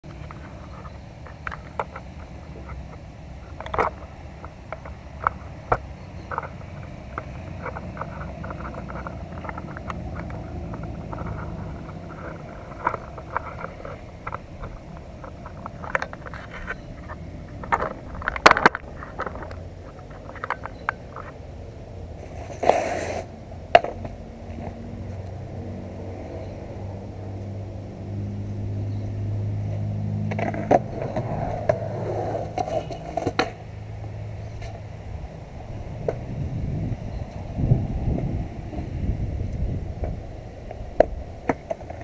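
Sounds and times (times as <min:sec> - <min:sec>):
skateboard clacks on concrete: 0:00.0 - 0:25.2, 0:30.2 - 0:33.8, 0:38.7 - 0:42.0
passing motor vehicle engine hum: 0:00.0 - 0:42.0.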